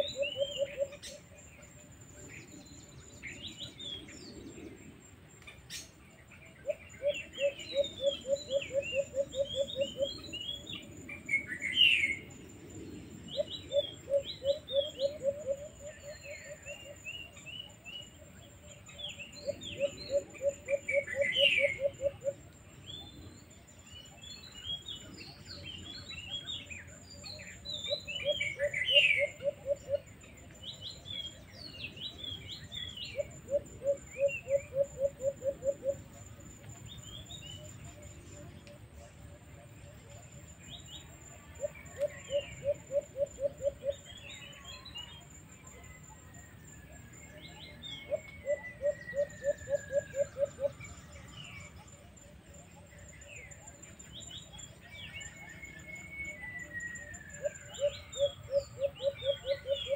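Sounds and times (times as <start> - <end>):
small birds chirping: 0.0 - 59.9
bird pulsing call: 13.4 - 17.0, 19.5 - 22.4, 47.6 - 50.8, 56.2 - 59.9.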